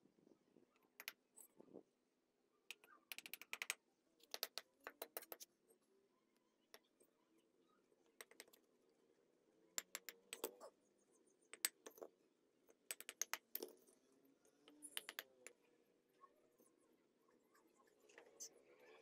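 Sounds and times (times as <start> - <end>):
metal tool tapping on bricks: 2.7 - 5.4, 9.8 - 10.7, 11.5 - 12.1, 12.9 - 13.7, 14.8 - 15.6.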